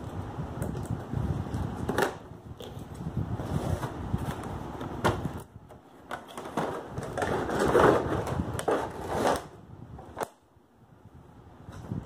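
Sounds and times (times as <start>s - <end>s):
cardboard and plastic crinkling: 6.0s - 9.6s.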